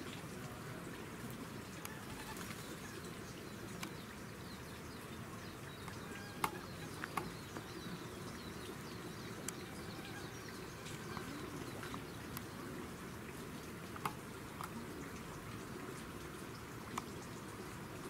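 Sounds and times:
steady background hiss: 0.0s - 18.0s
faint bird chirps: 1.8s - 12.8s.

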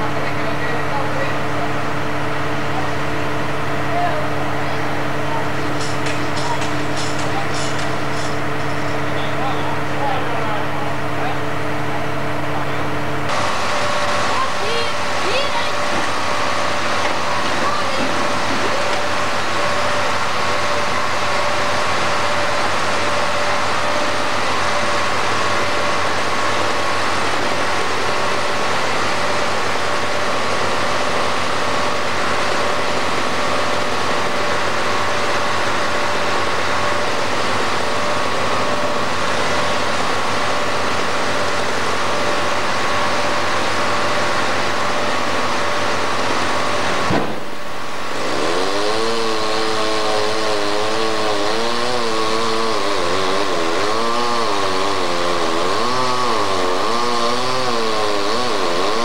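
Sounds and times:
machinery engine droning: 0.0s - 59.0s.

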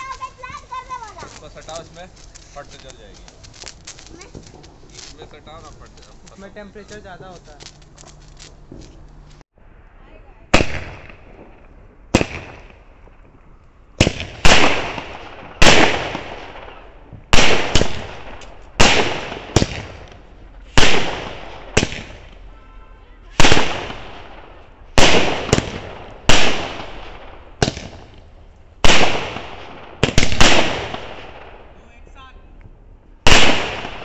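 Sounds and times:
fireworks bangs echoing: 10.5s - 13.4s, 14.0s - 22.7s, 23.3s - 31.8s, 33.2s - 34.0s.

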